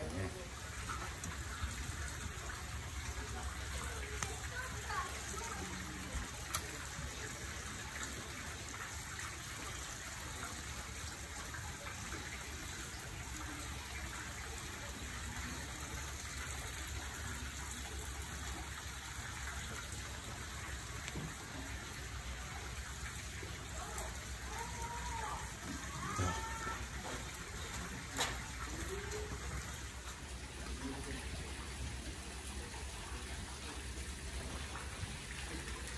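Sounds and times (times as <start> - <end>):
running water rushing: 0.0 - 35.9
faint clicks: 4.1 - 4.4.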